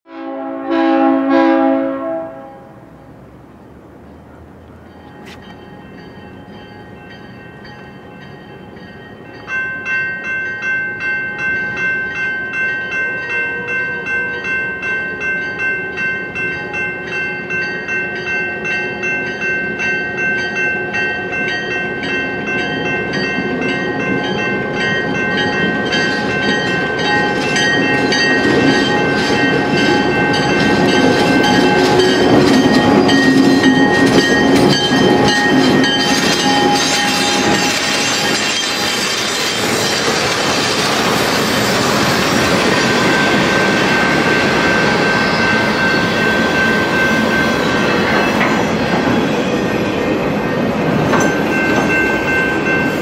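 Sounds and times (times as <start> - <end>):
railroad crossing bell ringing: 4.1 - 53.0
diesel train rumble: 21.4 - 53.0.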